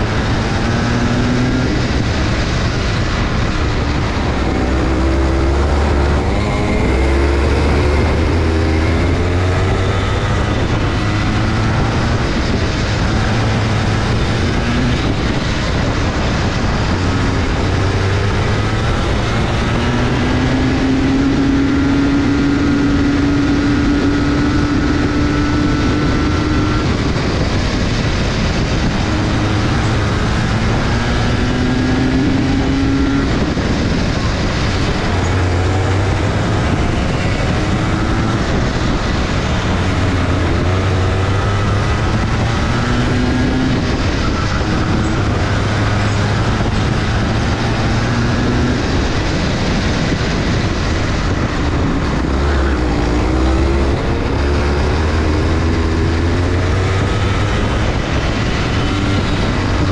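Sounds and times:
constant rumble: 0.0 - 59.9
go-kart engines racing: 0.0 - 59.9.

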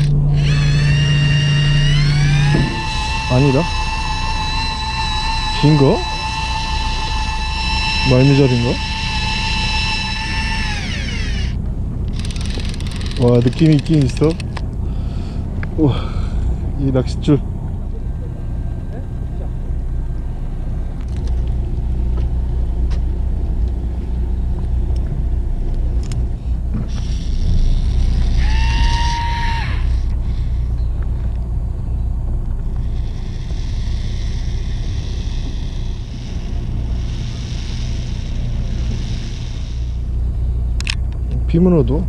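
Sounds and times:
high hiss: 0.0 - 11.6, 32.8 - 40.6
brief rising whine: 0.0 - 41.2
boat engine rumbling: 0.0 - 42.0.

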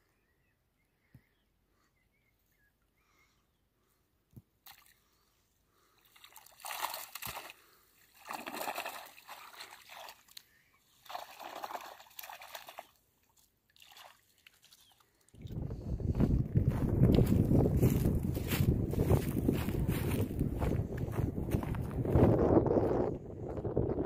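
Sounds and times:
water sloshing and dripping: 5.9 - 15.6.

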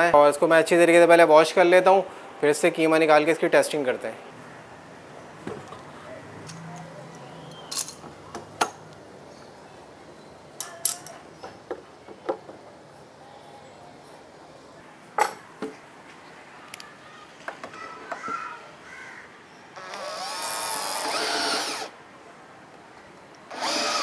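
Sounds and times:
metal clamps clinking and knocking: 7.7 - 8.8.

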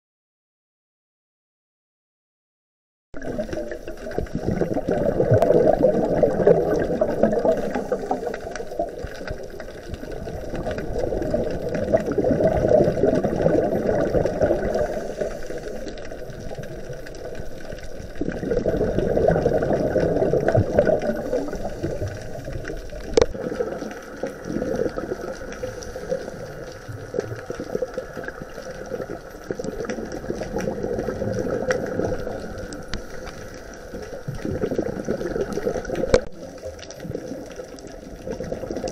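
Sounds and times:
underwater exhaled bubbles: 3.2 - 38.9.

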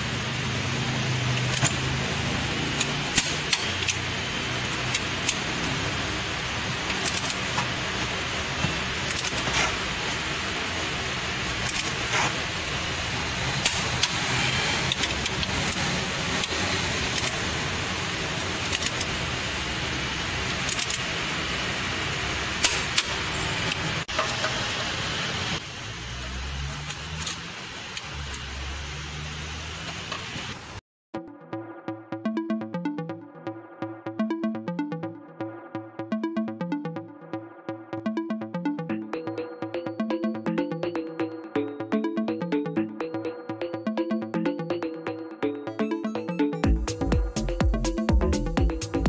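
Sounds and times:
socket wrench clicking on bolts: 2.8 - 4.0.

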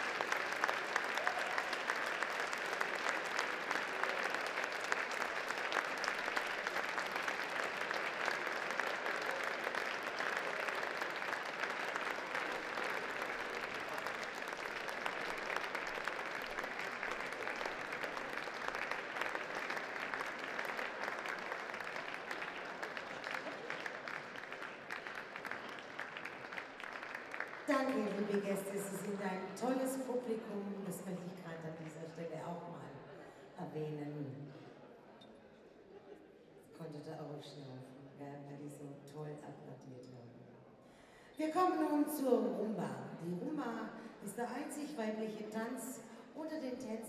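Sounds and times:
audience applauding: 0.0 - 29.1.

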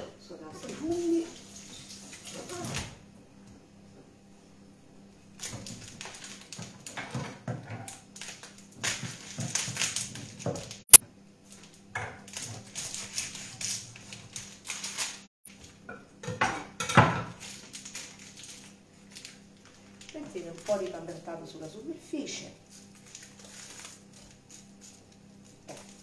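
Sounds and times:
rustling in kitchen: 0.2 - 3.0, 5.3 - 26.0
dishes and utensils knocking: 15.9 - 17.4.

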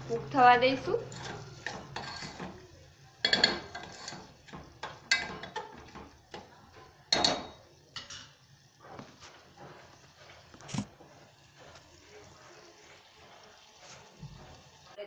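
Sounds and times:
metal spoon scraping pot: 0.8 - 2.6, 3.2 - 6.0
spoon clinking on pot: 3.2 - 4.2, 4.8 - 6.5, 7.1 - 8.4.

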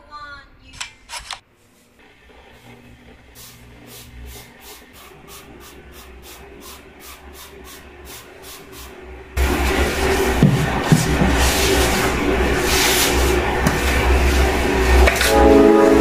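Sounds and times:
loud music track: 9.4 - 16.0
low held tone: 14.9 - 16.0.

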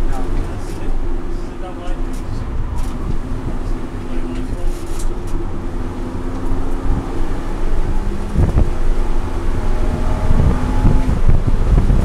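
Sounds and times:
car engine accelerating: 0.0 - 12.0
wind buffeting microphone: 0.0 - 12.0.

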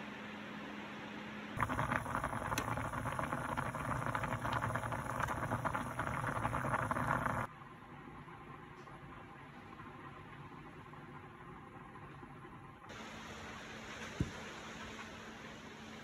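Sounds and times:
low hum: 1.6 - 7.5
water boiling with bubbling: 1.6 - 7.5.

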